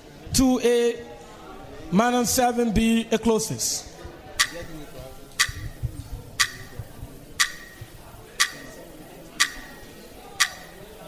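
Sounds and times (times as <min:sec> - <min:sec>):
timer ticking: 0:04.4 - 0:11.0.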